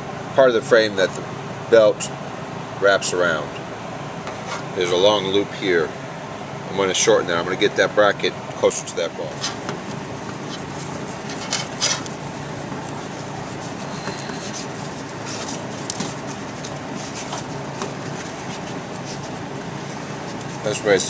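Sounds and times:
seatbelt webbing scraping metal: 9.3s - 21.0s.

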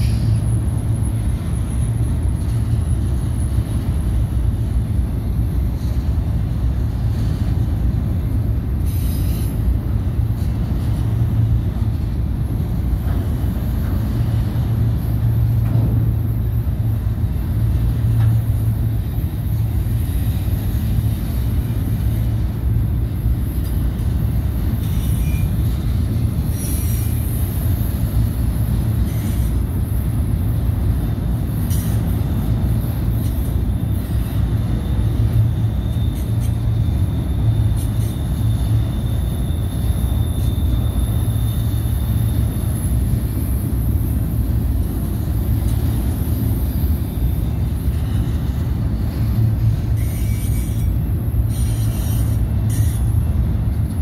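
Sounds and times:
freight train wheels rumbling on rails: 0.0s - 54.0s
high wheel squeal: 24.6s - 28.0s, 28.8s - 29.8s, 31.6s - 44.7s, 46.4s - 53.7s.

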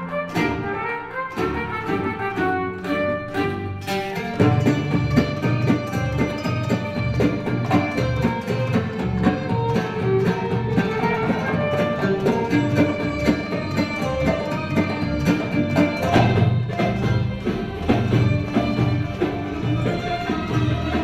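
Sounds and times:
plucked strings: 0.0s - 21.0s
violin melody: 0.0s - 21.0s
regular drum rhythm: 0.1s - 21.0s.

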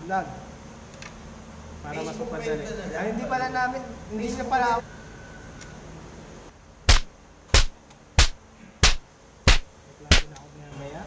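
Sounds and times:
sharp hits: 6.9s - 10.3s.

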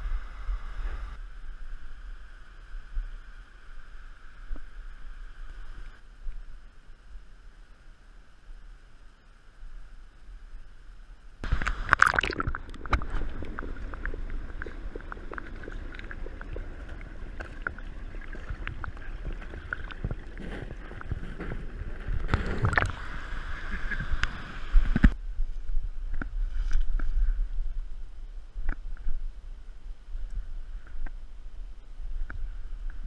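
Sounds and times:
river water gurgling: 11.4s - 25.2s
low rumble: 11.4s - 33.0s.

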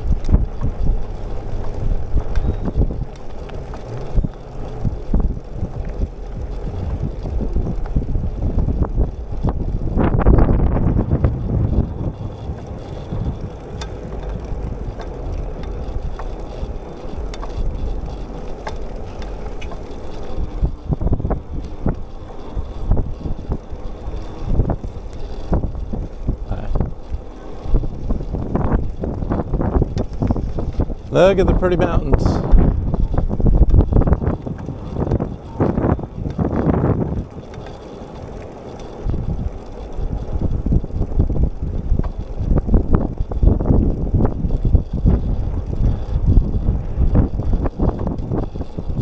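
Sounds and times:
bicycle tyre noise: 0.0s - 49.0s
bike clicks and rattles: 0.0s - 49.0s
wind buffeting microphone: 0.0s - 49.0s.

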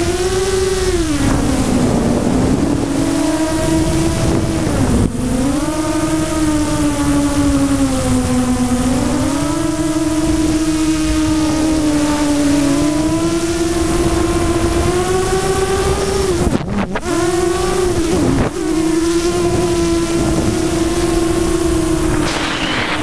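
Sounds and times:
drone propellers whining: 0.0s - 23.0s
low rushing wind: 0.0s - 23.0s.

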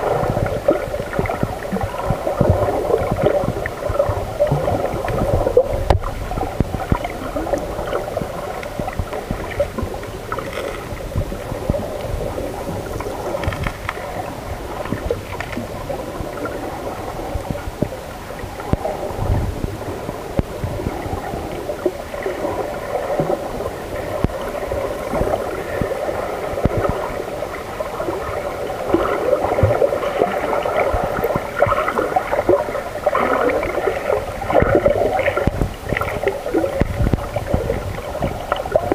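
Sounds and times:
underwater gurgling and sloshing: 0.0s - 38.9s
irregular crackling: 0.7s - 16.7s.

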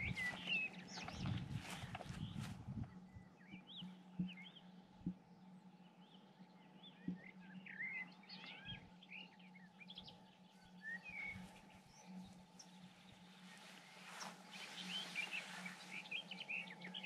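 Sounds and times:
soft low thumps: 0.0s - 3.0s
birdsong chirps and twittering: 0.0s - 17.0s.

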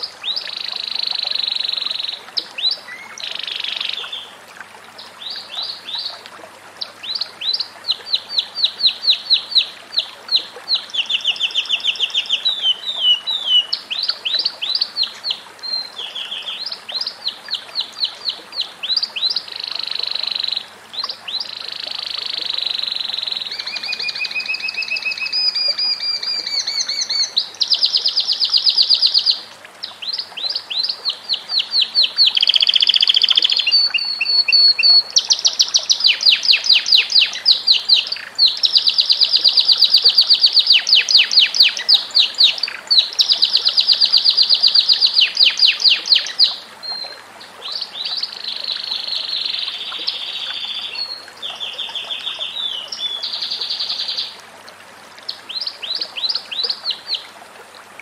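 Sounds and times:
canary singing trills: 7.1s - 29.4s, 30.1s - 47.0s, 47.7s - 54.4s.

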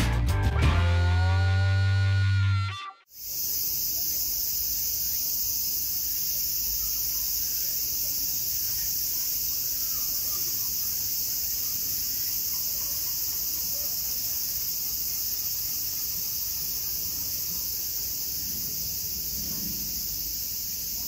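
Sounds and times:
cicada chorus droning: 3.1s - 21.0s.

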